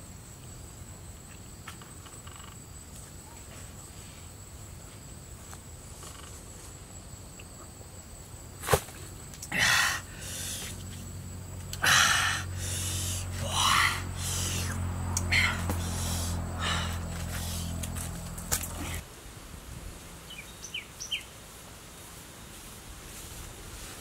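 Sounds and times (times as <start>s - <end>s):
man gasping and exhaling: 9.4s - 10.9s, 11.7s - 18.0s.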